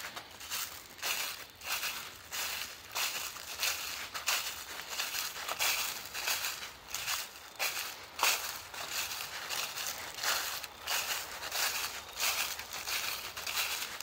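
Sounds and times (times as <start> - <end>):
footsteps crunching dry leaves: 0.0 - 14.0.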